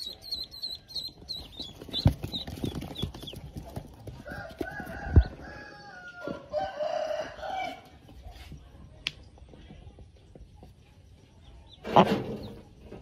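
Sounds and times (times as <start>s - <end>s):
ducklings peeping: 0.0s - 5.4s, 9.7s - 13.0s.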